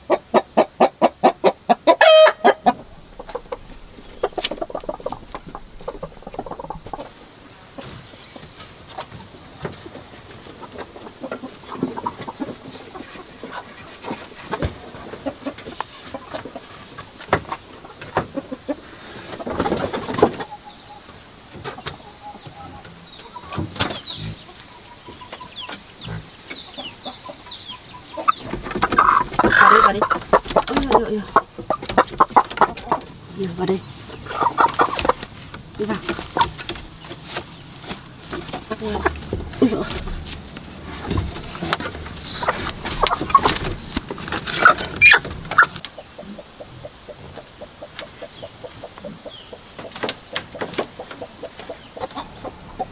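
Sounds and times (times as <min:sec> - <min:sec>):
hens clucking: 0:00.0 - 0:52.9
straw rustling: 0:02.0 - 0:17.2, 0:28.4 - 0:45.9.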